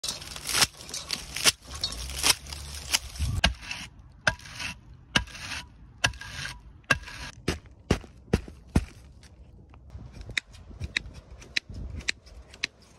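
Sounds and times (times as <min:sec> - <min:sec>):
dry straw rustling: 0:00.0 - 0:03.4.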